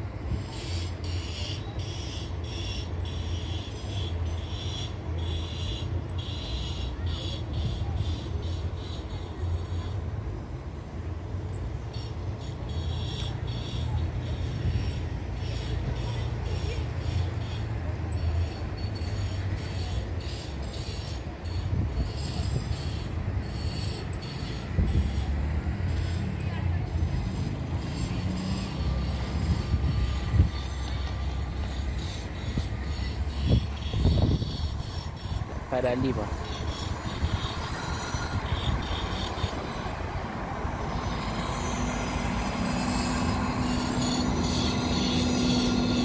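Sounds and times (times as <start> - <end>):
bus engine idling: 0.0 - 46.0
pulsing hiss: 18.3 - 46.0.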